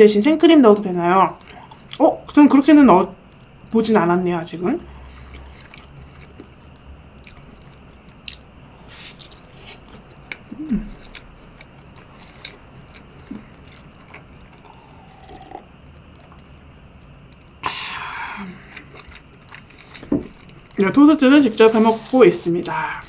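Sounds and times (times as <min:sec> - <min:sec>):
close chewing with mouth clicks: 0:04.8 - 0:17.6, 0:18.6 - 0:20.8
person drinking from a glass: 0:14.6 - 0:15.7
person humming: 0:14.7 - 0:15.6.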